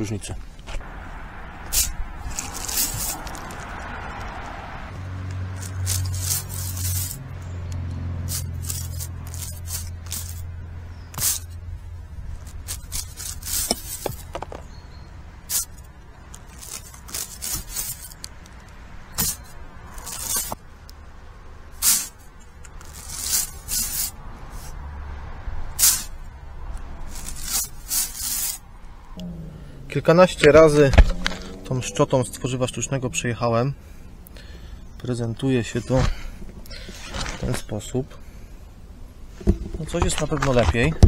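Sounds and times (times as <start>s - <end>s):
chimney brush scraping brick flue: 5.6s - 7.3s, 8.2s - 10.4s, 11.1s - 11.6s, 12.4s - 14.7s, 27.0s - 28.6s.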